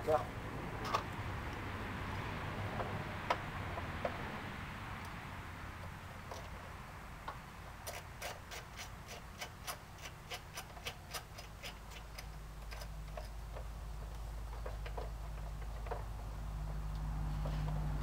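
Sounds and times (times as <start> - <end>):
ratchet wrench clicking: 7.8 - 13.4.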